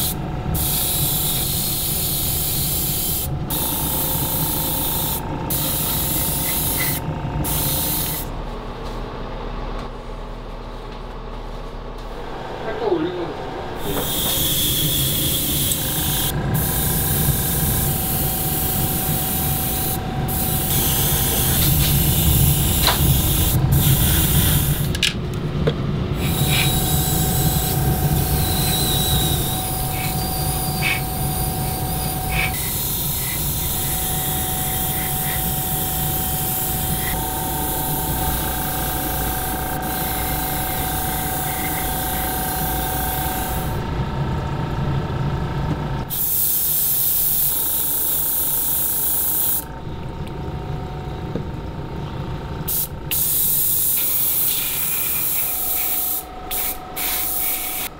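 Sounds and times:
airbrush hissing: 0.0s - 8.3s, 13.8s - 24.9s, 26.2s - 43.7s, 46.1s - 49.6s, 52.7s - 57.9s
steady hum: 0.0s - 57.9s.

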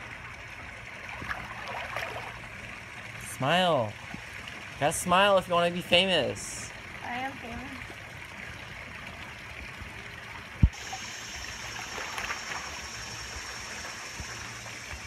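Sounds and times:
water trickling and splashing: 0.0s - 15.0s
spa spillover pouring: 10.7s - 15.0s.

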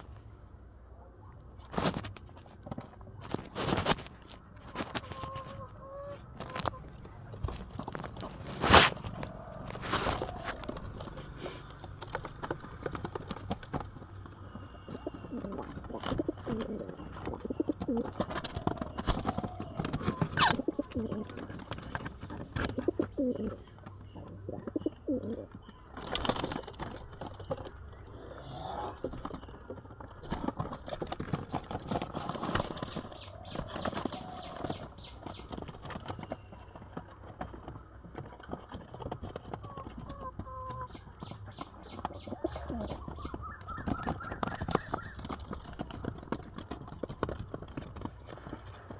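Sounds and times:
pigeons cooing: 7.5s - 36.2s, 39.3s - 47.4s.

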